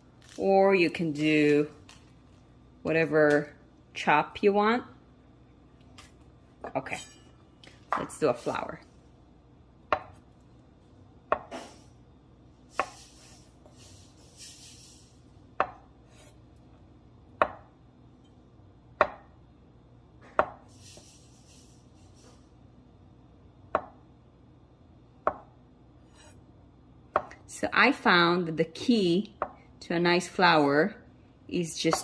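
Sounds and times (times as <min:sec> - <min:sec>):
knife slicing avocado: 0:12.7 - 0:14.6.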